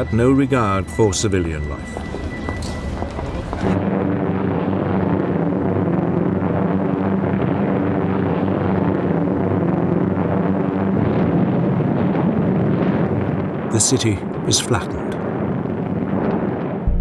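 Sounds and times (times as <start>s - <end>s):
bomber piston engines droning: 0.0s - 12.0s.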